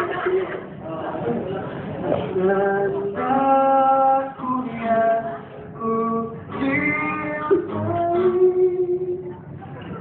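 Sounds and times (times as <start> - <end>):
acoustic guitars strummed: 1.2 - 10.0
person singing: 2.3 - 9.4.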